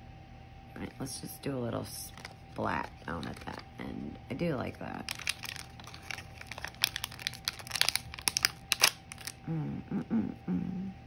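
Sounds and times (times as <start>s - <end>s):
plastic sleeve crinkling: 2.0s - 3.8s, 4.9s - 9.4s.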